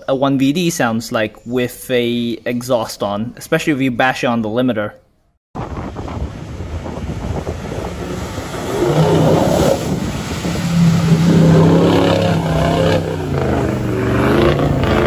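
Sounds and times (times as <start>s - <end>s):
diesel engine under load: 5.8s - 15.0s
water spray splashing: 6.0s - 15.0s.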